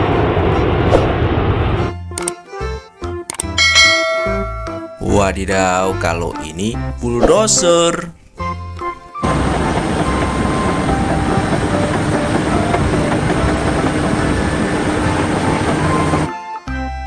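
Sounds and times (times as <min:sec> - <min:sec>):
bulldozer diesel drone: 0:00.0 - 0:01.9, 0:09.2 - 0:16.3
steel tracks rattling: 0:09.2 - 0:16.3.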